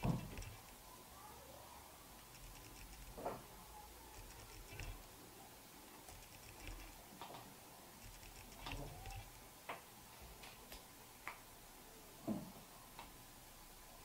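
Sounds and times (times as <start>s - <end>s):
fingers tapping plastic film: 8.1s - 9.3s.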